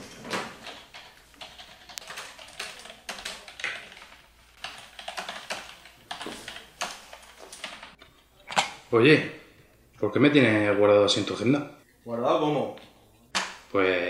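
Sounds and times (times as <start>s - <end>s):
computer keyboard typing: 0.2s - 8.0s.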